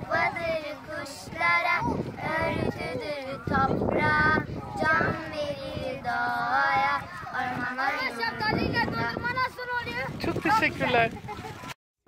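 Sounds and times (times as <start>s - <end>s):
girls singing together: 0.0s - 10.1s.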